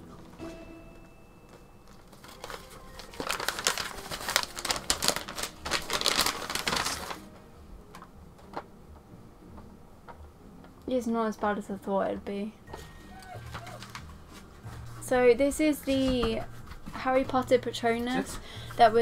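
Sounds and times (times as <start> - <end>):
paper wrapping crinkling: 1.8 - 7.4, 12.8 - 17.3.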